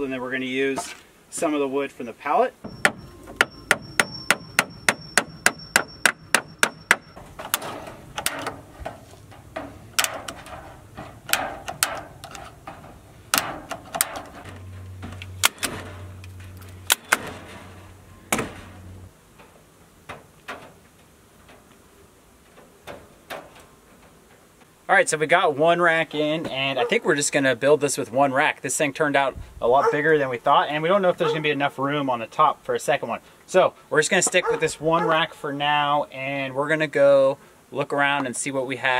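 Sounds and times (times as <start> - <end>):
hammer driving nail into wood: 2.7 - 8.6
snips cutting wire mesh: 2.9 - 17.5.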